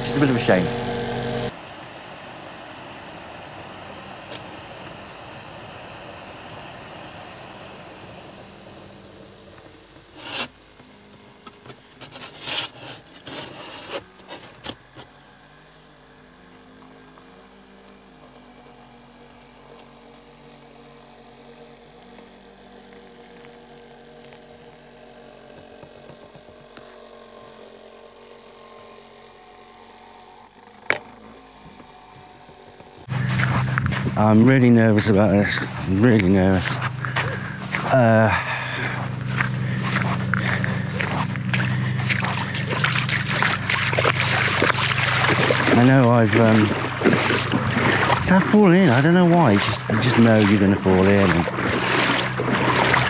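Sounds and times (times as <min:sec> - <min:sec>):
construction machinery: 0:00.0 - 0:53.0
steady hum: 0:00.0 - 0:53.0
sharp scraping knocks: 0:10.2 - 0:10.5, 0:11.6 - 0:15.1.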